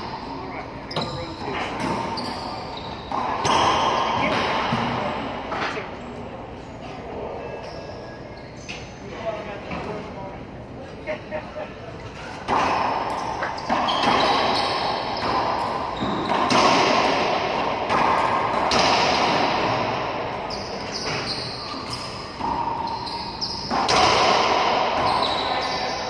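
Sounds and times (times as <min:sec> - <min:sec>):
racquetball cracking off racquets: 0:12.4 - 0:25.8.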